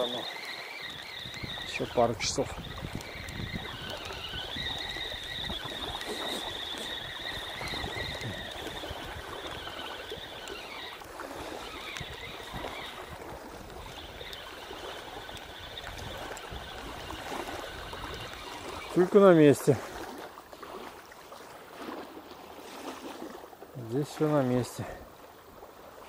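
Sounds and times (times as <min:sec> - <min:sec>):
fishing reel whining: 0:00.0 - 0:20.2
small waves lapping: 0:00.0 - 0:26.0.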